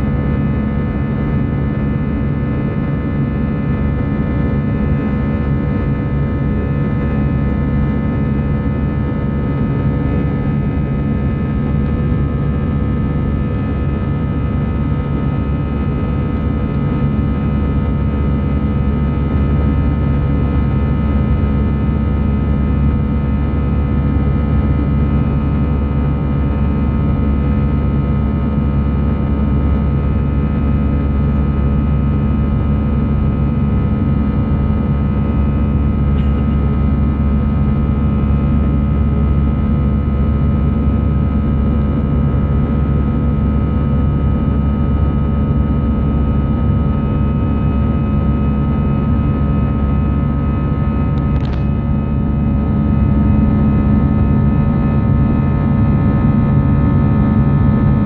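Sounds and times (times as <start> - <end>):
deep rumble of engines and airflow: 0.0 - 58.0
steady hums: 35.2 - 58.0.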